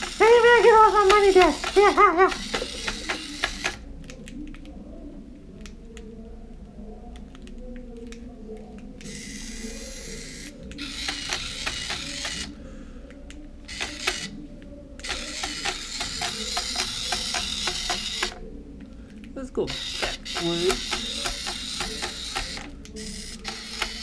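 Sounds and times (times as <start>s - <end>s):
toy gear motor whirring: 0.0s - 3.8s, 9.0s - 12.6s, 13.7s - 14.4s, 15.0s - 18.4s, 19.7s - 24.0s
plastic legs clicking: 19.7s - 24.0s.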